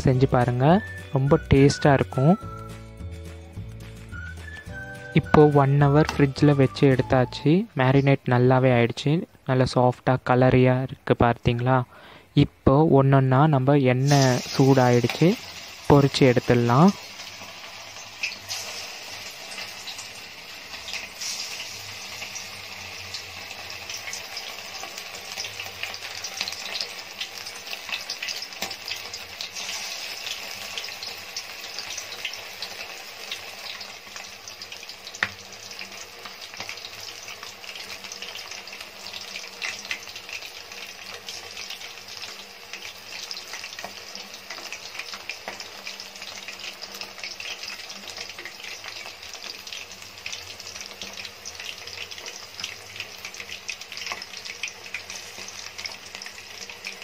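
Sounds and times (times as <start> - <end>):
chicken deep-frying in hot oil: 13.4 - 57.0.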